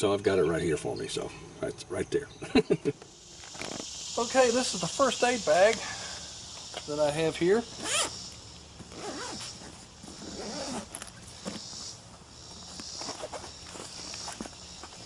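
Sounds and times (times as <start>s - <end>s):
zipper rasping: 7.8s - 8.1s, 8.9s - 11.0s.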